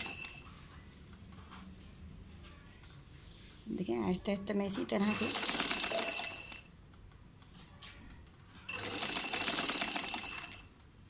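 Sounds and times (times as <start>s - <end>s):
sewing machine stitching: 0.0s - 0.4s, 5.0s - 6.7s, 8.7s - 10.7s.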